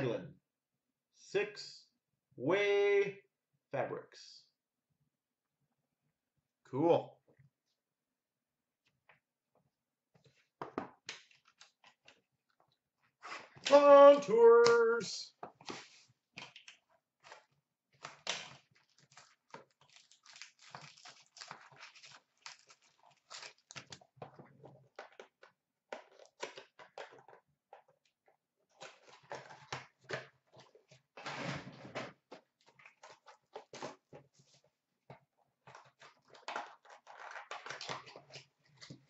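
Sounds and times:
cardboard and wrapper rustling: 13.1s - 39.0s.

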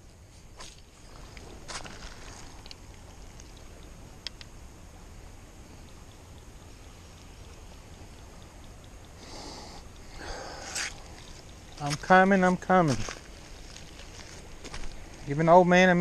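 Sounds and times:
soft hiss: 0.0s - 16.0s
small clicks: 2.6s - 4.5s.

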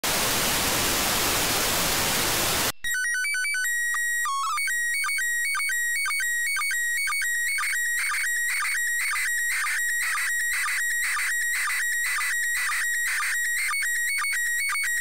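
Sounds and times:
radio static hiss: 0.0s - 2.7s.

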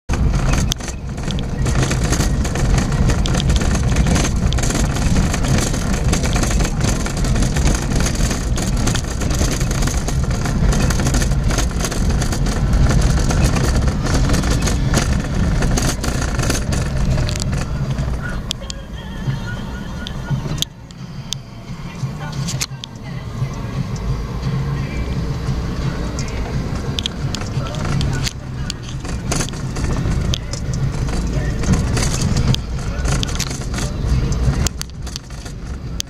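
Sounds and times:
car engine and tyre rumble: 0.0s - 36.0s
knocks and rattles from bumps: 0.1s - 18.6s, 25.5s - 36.0s.

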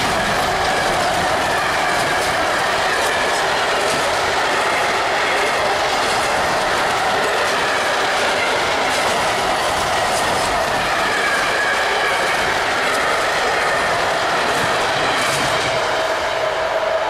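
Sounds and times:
train wheels rolling on rails: 0.0s - 17.0s.

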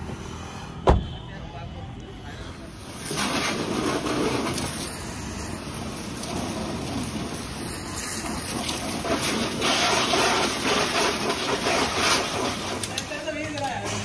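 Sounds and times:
pressure washer spraying water: 2.7s - 13.8s.

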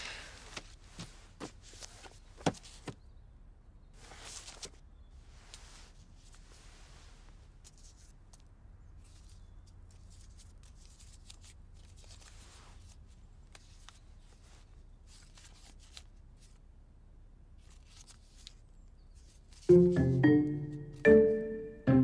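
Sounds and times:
paper crinkling: 4.1s - 4.8s, 7.2s - 16.6s, 17.6s - 19.7s
loud music with mallet percussion: 19.7s - 22.0s.

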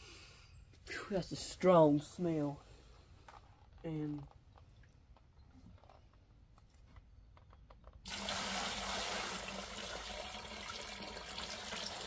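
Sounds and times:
liquid pouring into plastic bucket: 8.0s - 12.0s.

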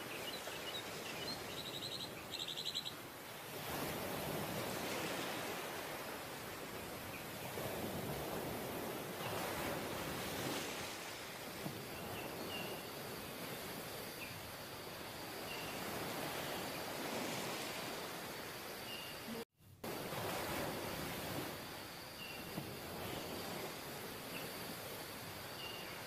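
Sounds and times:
surf breaking on beach: 19.8s - 21.8s.

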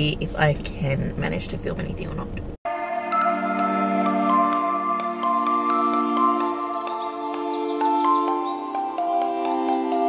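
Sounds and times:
held chords: 2.6s - 10.0s
high falling chime-like notes: 2.7s - 10.0s.

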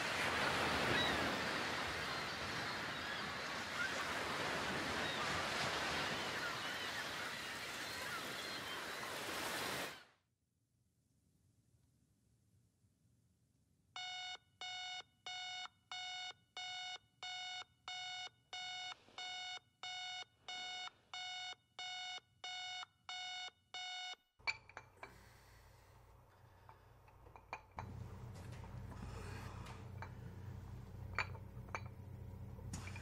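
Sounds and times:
alarm clock beeping: 14.0s - 24.2s
low hum: 27.8s - 33.0s.

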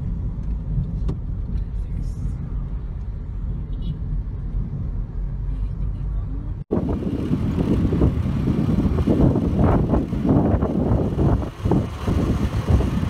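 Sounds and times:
road and wind noise: 0.0s - 13.0s.

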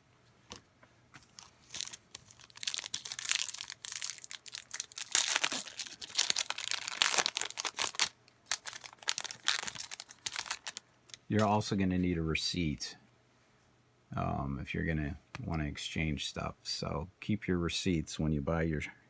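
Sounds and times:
foil wrapper crinkling: 1.3s - 11.4s.

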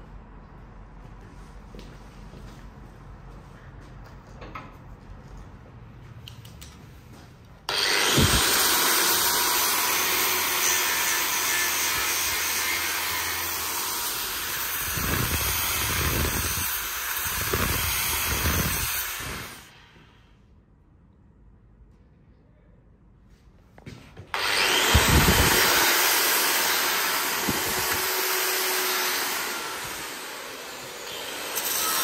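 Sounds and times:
angle grinder grinding steel: 7.7s - 19.6s, 24.4s - 32.0s.

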